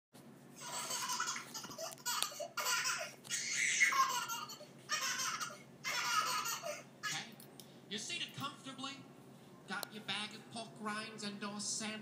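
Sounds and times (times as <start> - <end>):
high-pitched laughter: 0.6 - 7.2.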